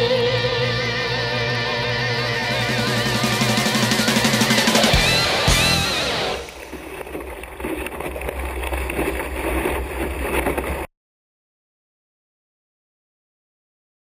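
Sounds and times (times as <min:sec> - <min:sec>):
rock guitar music: 0:00.0 - 0:06.6
water rushing past a hull: 0:02.5 - 0:10.9.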